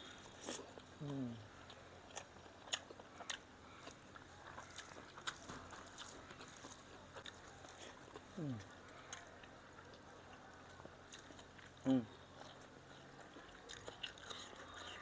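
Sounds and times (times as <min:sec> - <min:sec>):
chewing and lip-smacking: 0:00.0 - 0:15.0.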